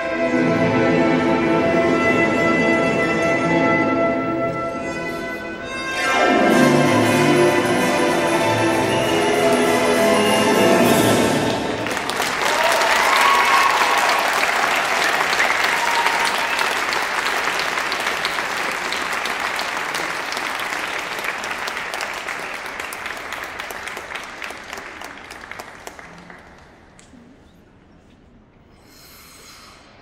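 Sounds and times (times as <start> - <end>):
audience applauding: 8.8 - 27.1.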